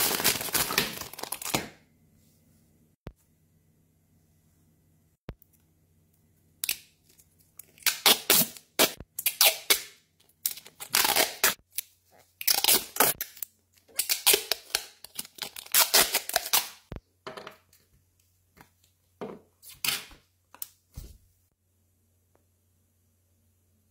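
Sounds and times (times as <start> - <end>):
packaging tearing and rustling: 0.0 - 1.7, 12.4 - 16.8.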